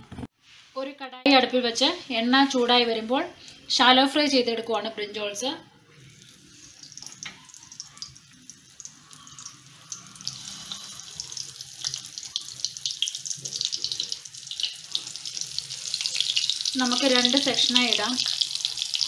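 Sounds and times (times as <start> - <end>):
hot oil sizzling and crackling: 6.0 - 19.0.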